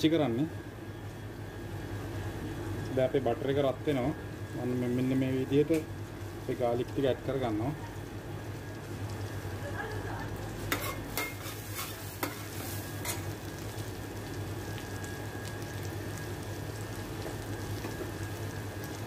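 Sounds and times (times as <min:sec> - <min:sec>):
garlic sizzling in butter: 0:02.9 - 0:19.0
metal spoon scraping pan: 0:10.7 - 0:13.2.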